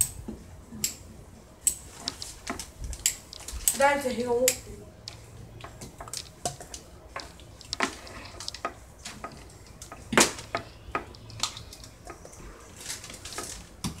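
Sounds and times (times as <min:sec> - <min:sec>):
low steady hum: 0:00.0 - 0:14.0.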